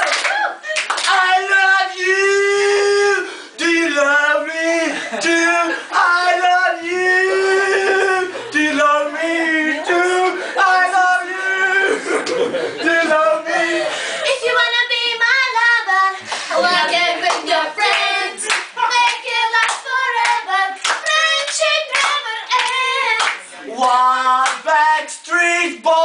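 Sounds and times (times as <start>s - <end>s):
hand claps: 0.0s - 1.2s, 17.3s - 24.6s
person singing: 1.0s - 26.0s.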